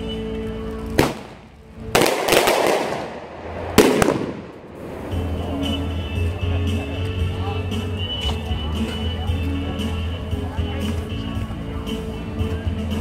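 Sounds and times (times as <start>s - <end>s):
hymn music: 0.0s - 10.6s
fireworks crackling: 0.7s - 6.7s
fireworks bangs: 1.0s - 5.8s.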